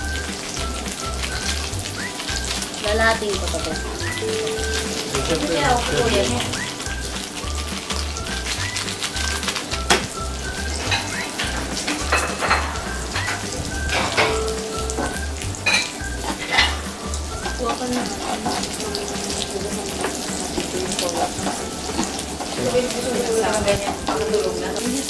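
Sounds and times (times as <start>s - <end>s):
meat sizzling on grill pan: 0.0s - 25.0s
low regular beat: 2.9s - 8.2s
tongs clinking on pan: 10.8s - 25.0s.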